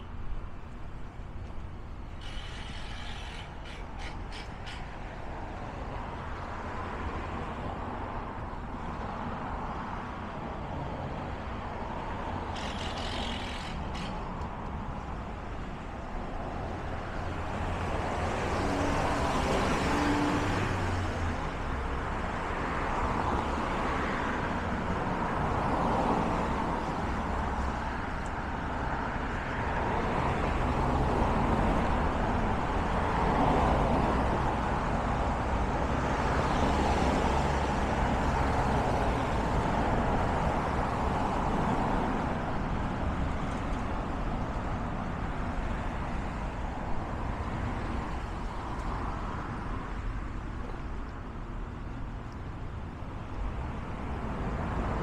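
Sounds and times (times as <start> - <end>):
vehicles passing on busy street: 0.0 - 55.0.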